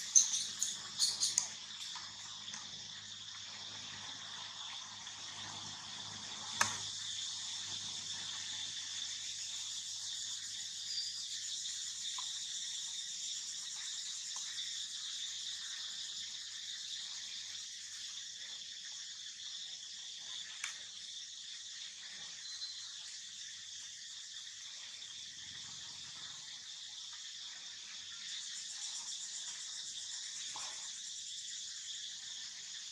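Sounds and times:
high-pitched insect chorus: 0:00.0 - 0:32.9
sharp click: 0:06.6 - 0:06.8.

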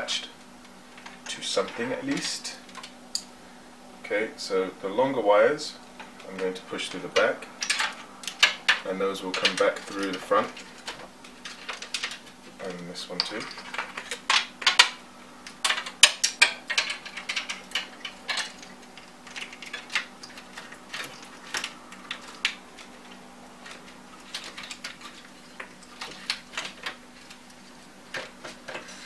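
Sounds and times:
faint steady hum: 0:00.0 - 0:29.0
computer radiator clicks and knocks: 0:05.9 - 0:29.0.

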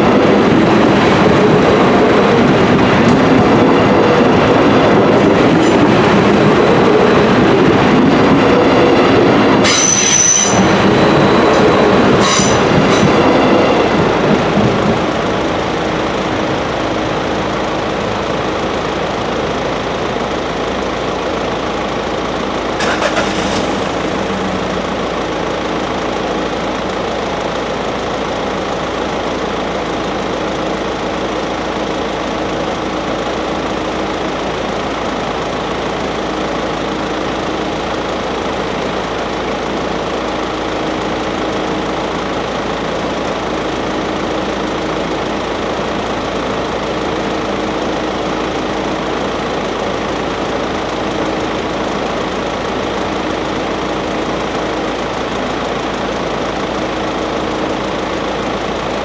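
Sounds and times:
diesel railcar running past: 0:00.0 - 0:59.0
rail and wheel noise: 0:00.0 - 0:59.0
high wheel squeals: 0:09.6 - 0:14.0.

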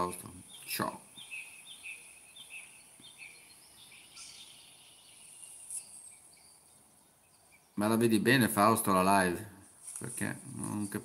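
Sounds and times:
bird chirping: 0:00.0 - 0:09.8
steady high-pitched hiss: 0:00.0 - 0:11.0.

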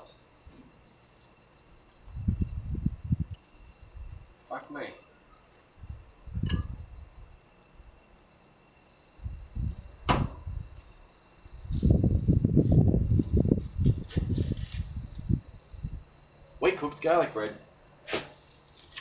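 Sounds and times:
high-pitched insect chorus: 0:00.0 - 0:19.0
sharp knock: 0:10.1 - 0:10.5.

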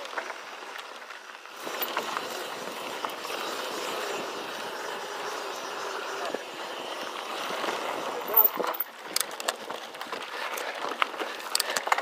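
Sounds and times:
bike tyres rolling on dirt: 0:00.0 - 0:12.0
bike clicks and rattles: 0:07.6 - 0:12.0.

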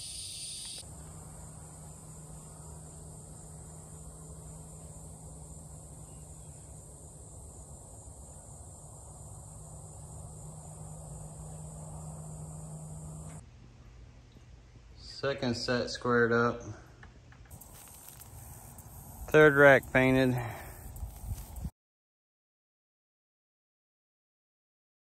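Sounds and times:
crickets trilling: 0:00.0 - 0:13.4, 0:17.5 - 0:21.7
faint low hum: 0:00.0 - 0:21.7.

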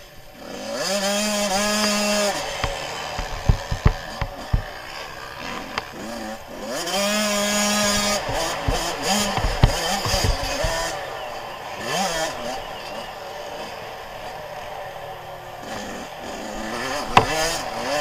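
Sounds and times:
motocross engine revving: 0:00.0 - 0:18.0
sharp knocks: 0:02.6 - 0:04.7, 0:07.8 - 0:10.9.

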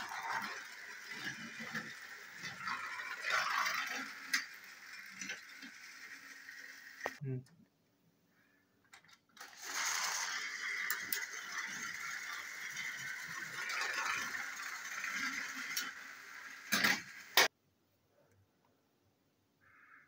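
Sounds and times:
toy train motors whirring: 0:00.0 - 0:07.2, 0:09.4 - 0:17.5
wheels rattling: 0:00.0 - 0:07.2, 0:09.4 - 0:17.5.

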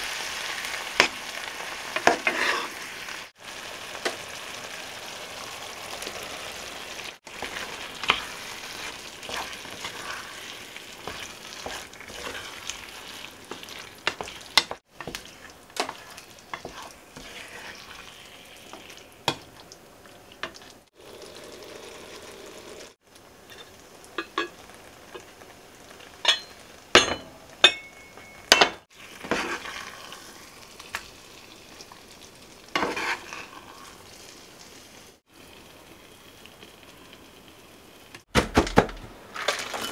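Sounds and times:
food sizzling in a pan: 0:00.0 - 0:38.2
utensils scraping a pan: 0:02.0 - 0:02.8, 0:07.3 - 0:19.4, 0:29.1 - 0:30.1, 0:32.8 - 0:33.9.

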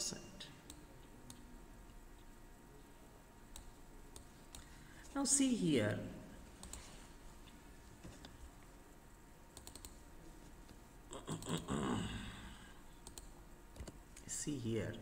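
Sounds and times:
computer mouse clicks: 0:03.5 - 0:04.7, 0:06.6 - 0:06.9, 0:09.5 - 0:10.0, 0:13.0 - 0:14.2.

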